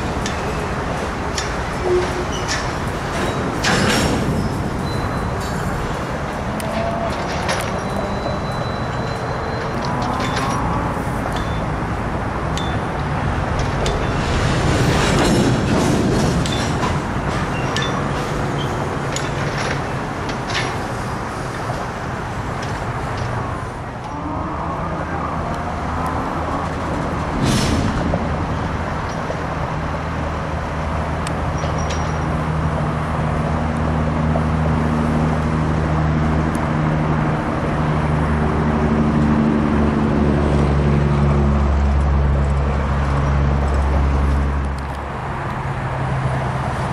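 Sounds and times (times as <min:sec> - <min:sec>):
metallic clanks: 0:00.0 - 0:23.6.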